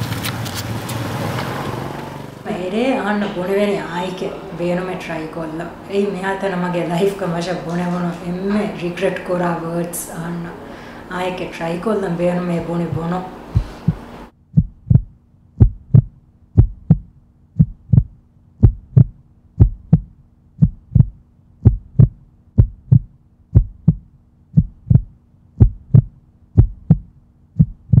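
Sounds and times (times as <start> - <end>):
faint steady hum: 2.4 - 28.0
heartbeat double thumps: 12.8 - 28.0.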